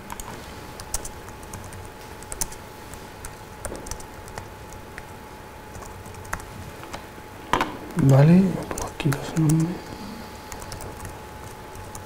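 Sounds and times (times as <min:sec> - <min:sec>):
typing on keyboard: 0:00.0 - 0:02.6, 0:03.2 - 0:05.1, 0:05.7 - 0:06.5, 0:10.5 - 0:12.0.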